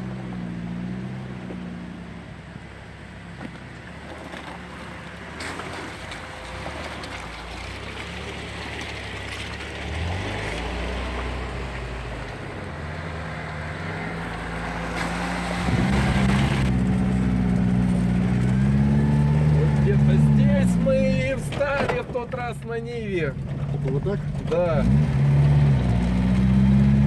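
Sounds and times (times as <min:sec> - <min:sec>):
off-road engines revving: 0:00.0 - 0:27.0
louder steady engine: 0:11.5 - 0:27.0.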